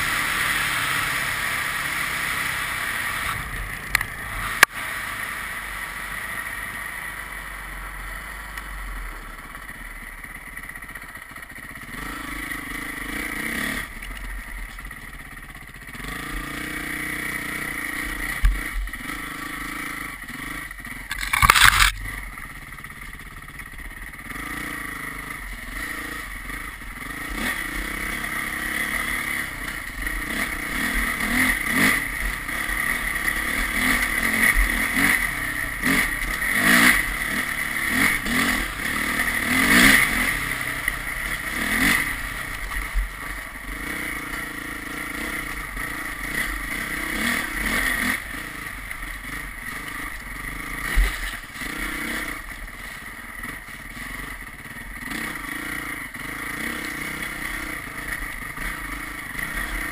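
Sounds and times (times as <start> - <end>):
vehicle engine revving: 11.7 - 14.0, 15.7 - 22.4, 24.1 - 59.9.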